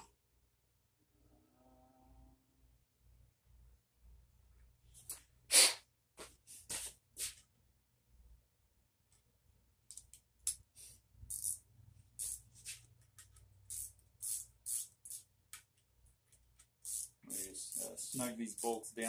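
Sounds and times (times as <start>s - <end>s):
hand ratchet clicking: 11.3s - 11.6s, 12.2s - 12.5s, 13.2s - 15.6s, 16.6s - 18.9s.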